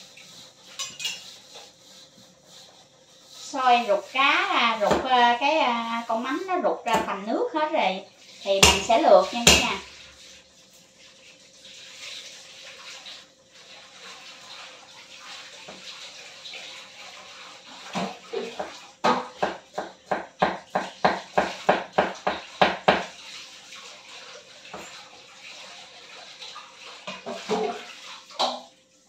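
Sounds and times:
sharp knocks on wok: 0:08.6 - 0:09.8.

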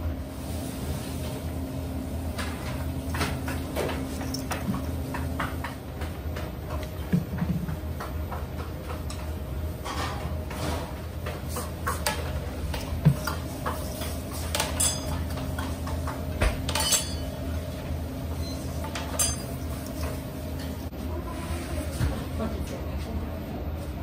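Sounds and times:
steady low hum: 0:00.0 - 0:24.0
knocks and clinks from metal bowl: 0:16.7 - 0:17.4, 0:18.8 - 0:20.1.

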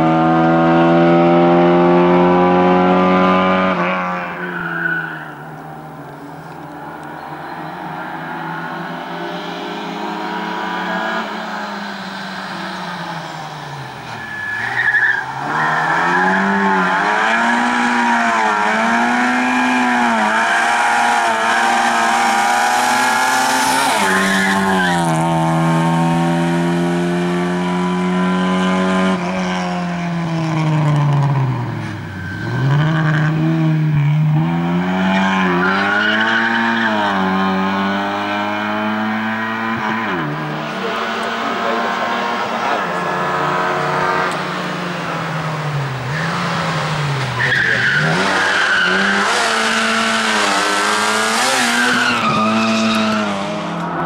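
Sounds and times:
car engine revving hard: 0:00.0 - 0:04.4, 0:07.4 - 0:54.0
tyre squeal: 0:04.3 - 0:05.6, 0:11.4 - 0:17.4, 0:31.7 - 0:33.4, 0:45.7 - 0:53.6.

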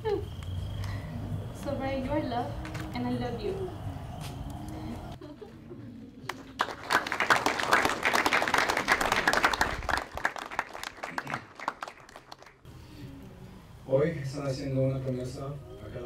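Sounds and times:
crowd applauding: 0:06.2 - 0:12.7.

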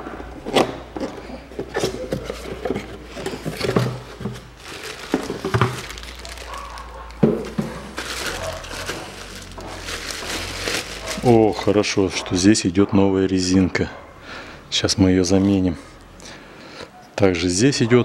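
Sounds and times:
plastic bag crinkling: 0:02.7 - 0:11.9.

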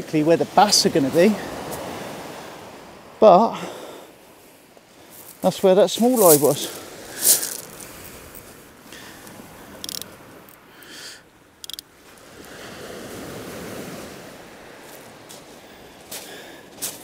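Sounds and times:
waves breaking on shingle beach: 0:00.0 - 0:17.0
sharp rustle: 0:06.0 - 0:08.5.

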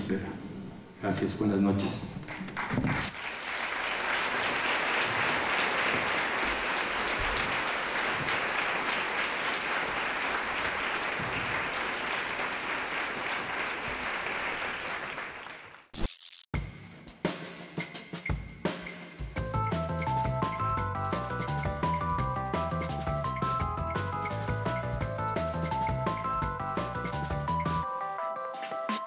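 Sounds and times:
audience applauding: 0:02.2 - 0:15.9
music with drums: 0:16.6 - 0:29.0.

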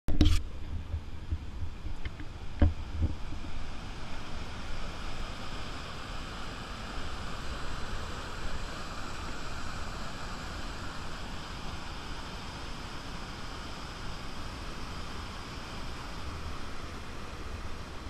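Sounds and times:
wind rumbling on microphone: 0:00.1 - 0:05.0.

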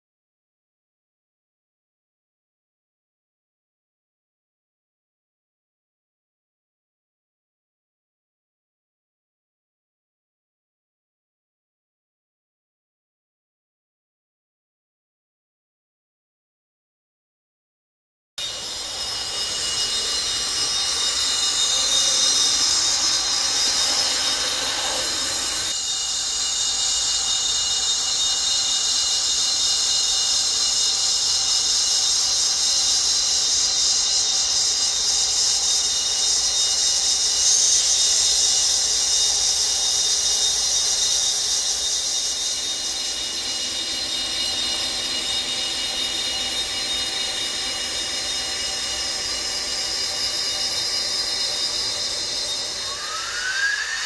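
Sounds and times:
model train high-pitched whine: 0:18.4 - 0:54.0.

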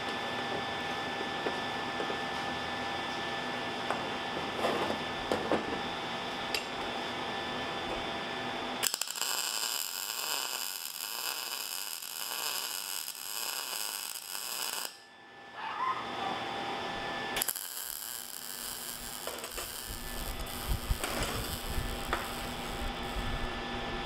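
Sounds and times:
welder arc buzzing: 0:07.7 - 0:15.1, 0:16.8 - 0:24.0.

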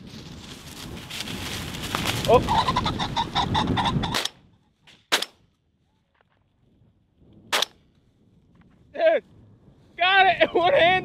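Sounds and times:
pheasant cackling: 0:02.1 - 0:04.8.

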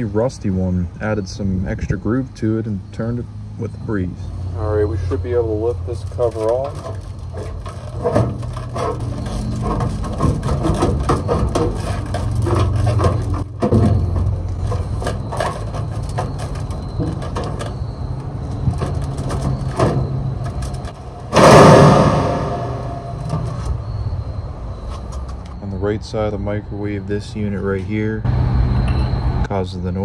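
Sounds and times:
steady low hum: 0:00.0 - 0:29.5
sheet metal clicks and rattles: 0:06.2 - 0:17.8, 0:18.4 - 0:23.7.

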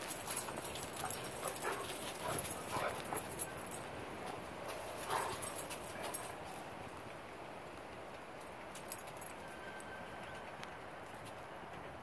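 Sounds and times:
steady outdoor hiss: 0:00.0 - 0:12.0
distant dog barking: 0:01.4 - 0:03.5.

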